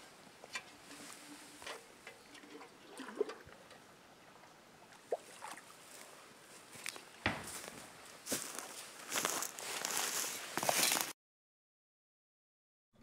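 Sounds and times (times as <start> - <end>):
pot filling with water gurgling: 1.3 - 3.8.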